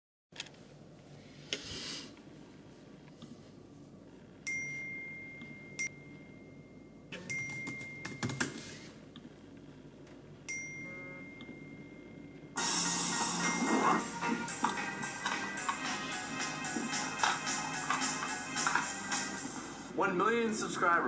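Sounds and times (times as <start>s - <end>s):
faint steady high tone: 4.4s - 8.1s, 10.5s - 12.6s
laptop keyboard and trackpad clicking: 7.3s - 8.8s.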